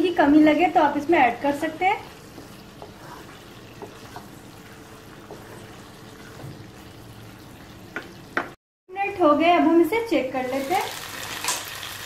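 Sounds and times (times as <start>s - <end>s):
okra sizzling in a pan: 0.2s - 8.6s, 10.2s - 12.0s
spatula tapping pan: 2.1s - 6.9s, 7.9s - 8.6s.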